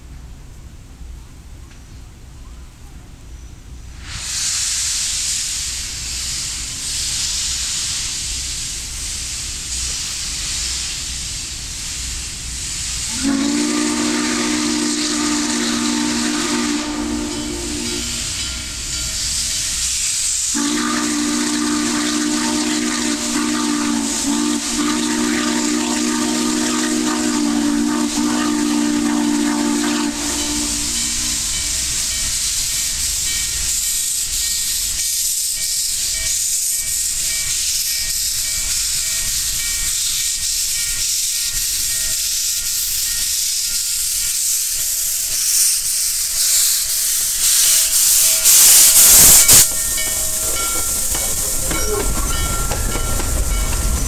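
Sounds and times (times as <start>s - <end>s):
steam hissing: 3.4s - 54.0s
locomotive chime whistle: 13.1s - 19.4s, 20.5s - 32.3s, 48.2s - 54.0s.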